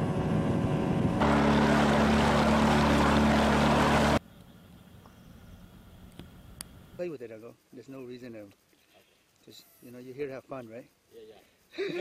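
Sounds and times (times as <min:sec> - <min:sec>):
motorboat engine droning: 0:00.0 - 0:04.2
wind: 0:00.0 - 0:12.0
water rushing: 0:01.2 - 0:04.2.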